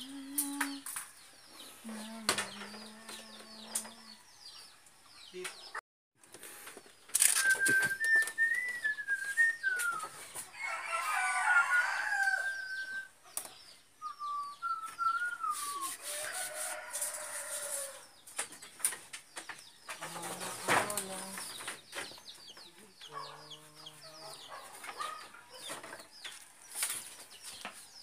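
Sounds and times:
roosters crowing: 10.0 - 13.2, 15.6 - 18.2.

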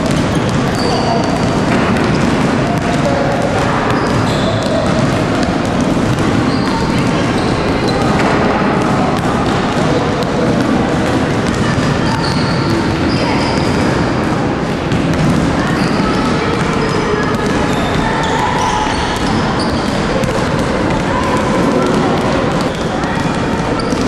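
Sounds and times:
shoe squeaks: 0.0 - 2.3, 3.9 - 5.0, 6.4 - 8.2, 12.0 - 14.1, 15.6 - 20.2, 22.6 - 24.0
basketballs bouncing on hardwood: 0.0 - 24.0.

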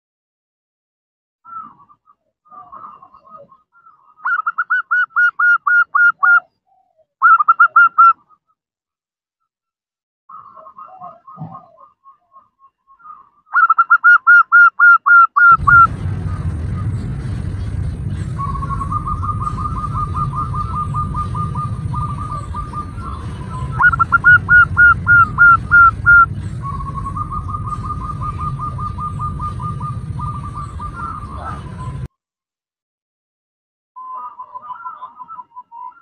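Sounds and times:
dove cooing: 10.4 - 12.0, 18.4 - 32.1
low rumble: 15.5 - 32.1.

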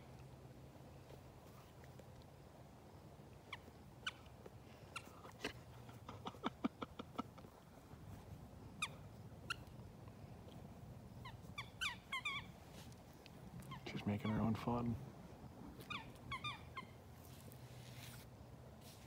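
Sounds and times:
dog chewing squeaky toy: 11.2 - 12.6, 15.8 - 16.9.

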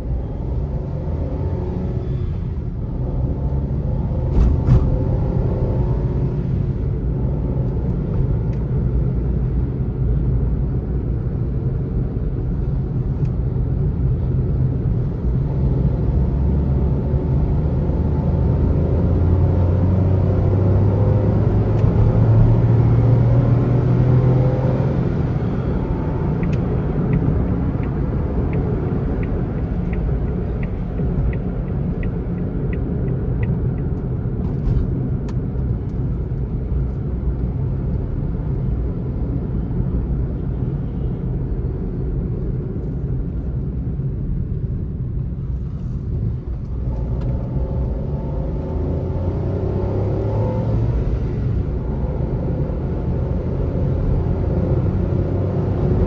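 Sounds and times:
road noise: 0.0 - 56.0
turn signal ticking: 25.8 - 34.4.

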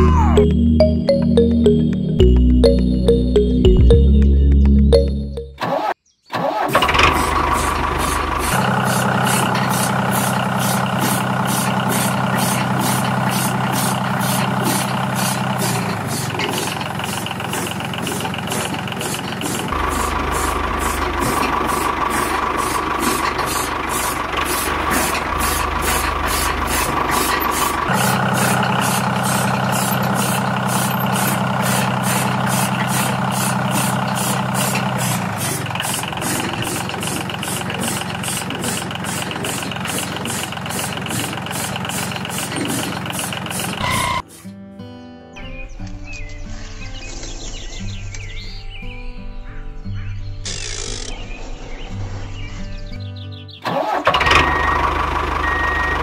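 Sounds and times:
diesel engine knocking: 6.8 - 44.2, 54.1 - 56.0.

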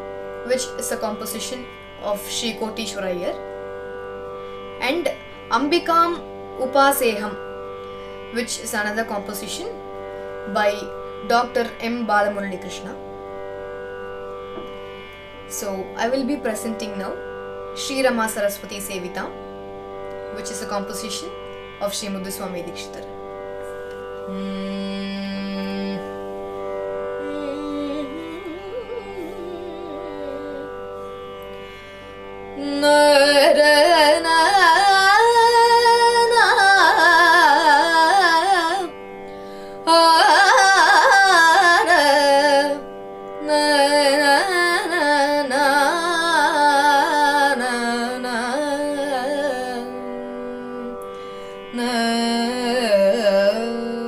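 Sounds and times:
tanpura drone: 0.0 - 54.0
woman singing: 24.3 - 26.4, 27.2 - 31.0, 32.6 - 39.0, 39.8 - 42.8, 43.4 - 51.0, 51.7 - 54.0.

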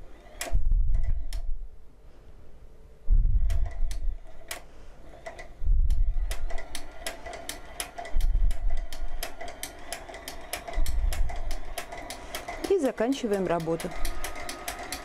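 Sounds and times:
machine low rumble: 0.0 - 2.2, 2.9 - 15.0
linking machine ticking: 5.2 - 15.0.

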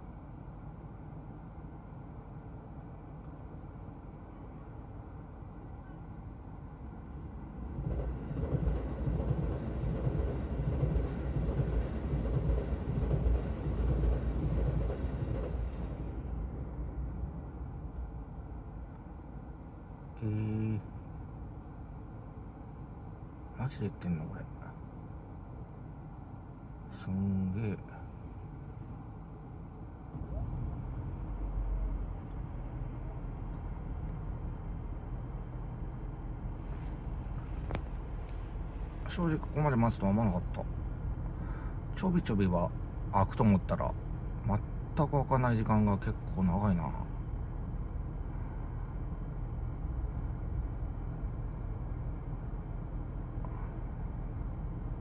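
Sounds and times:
train wheels rumbling on rails: 7.0 - 18.2, 30.0 - 48.8
motor vehicle rumble: 24.6 - 45.0, 46.1 - 55.0.

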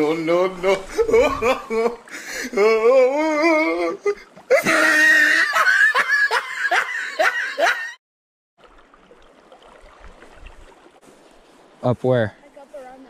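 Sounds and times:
man laughing: 0.3 - 8.0
river water rushing: 8.6 - 12.8.

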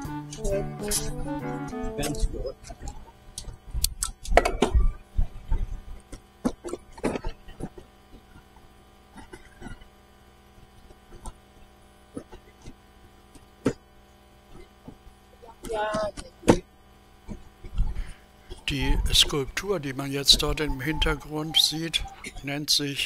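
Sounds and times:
steady tonal hum: 0.0 - 23.0.

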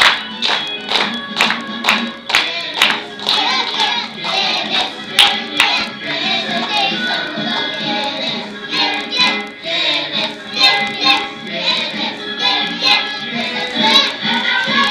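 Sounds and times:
music: 0.0 - 14.9
children singing: 2.4 - 14.9.

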